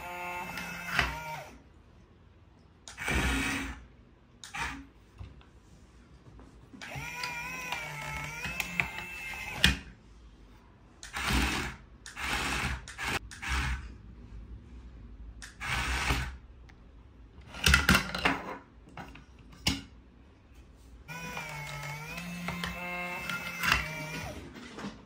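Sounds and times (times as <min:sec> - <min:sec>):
toy gear motors whirring: 0:00.0 - 0:01.6, 0:06.8 - 0:09.8, 0:11.0 - 0:13.8, 0:21.1 - 0:24.4.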